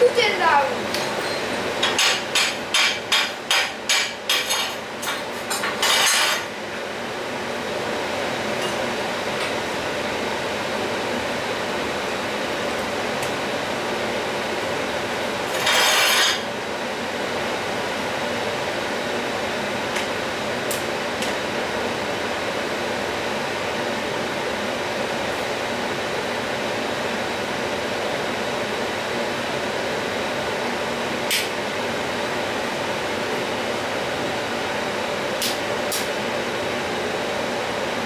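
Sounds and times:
fan whirring: 0:00.0 - 0:38.0.

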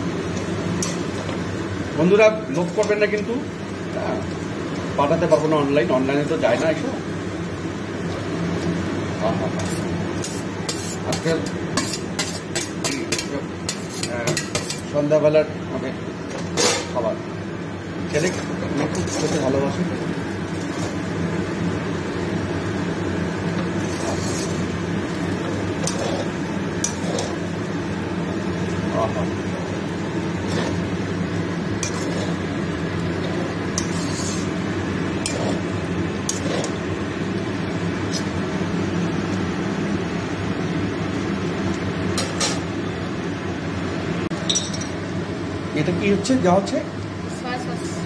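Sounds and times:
kitchen hum: 0:00.0 - 0:48.0
spatula scraping a wok: 0:00.7 - 0:01.4, 0:09.4 - 0:14.9, 0:18.1 - 0:19.7, 0:20.5 - 0:21.1, 0:23.6 - 0:27.6, 0:30.3 - 0:30.9, 0:31.7 - 0:36.9, 0:38.0 - 0:38.4.

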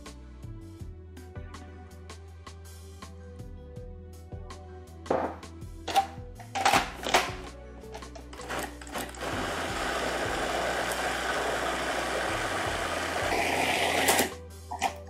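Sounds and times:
food processor whirring: 0:08.3 - 0:14.4.

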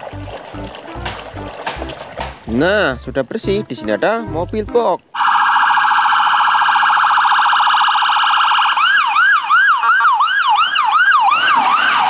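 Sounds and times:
ambulance siren: 0:05.2 - 0:12.0.

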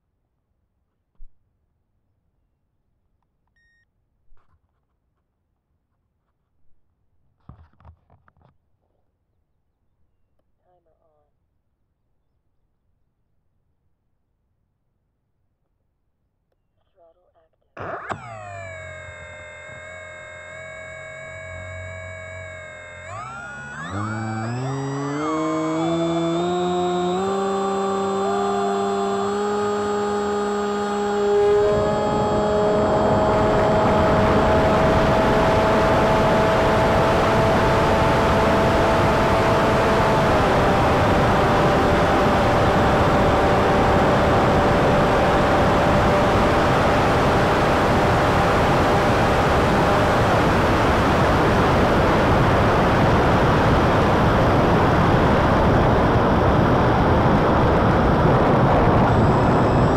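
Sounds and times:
electric motor whine: 0:17.8 - 0:59.9.

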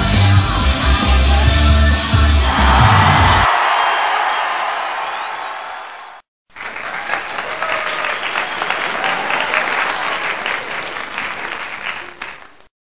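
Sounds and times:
audience applauding: 0:02.5 - 0:12.7.

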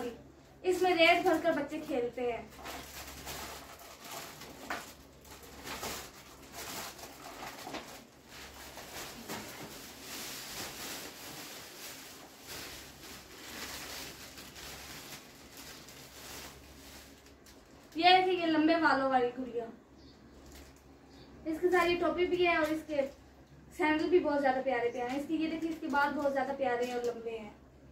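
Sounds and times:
plastic toys and packaging rustling: 0:00.6 - 0:18.4, 0:20.3 - 0:20.9, 0:25.0 - 0:27.3.

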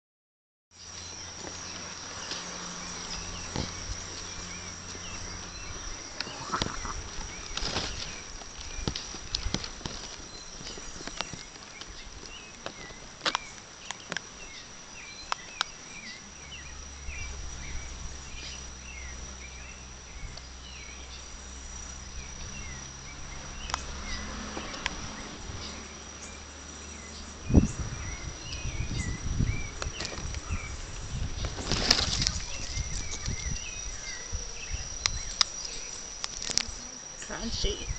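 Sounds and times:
insect drone: 0:00.8 - 0:37.9
rustling: 0:06.2 - 0:14.2, 0:30.0 - 0:34.3.

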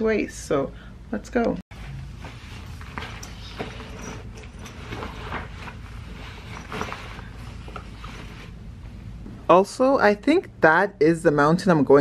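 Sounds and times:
low room hum: 0:00.0 - 0:12.0
fabric rustling: 0:01.7 - 0:08.9.

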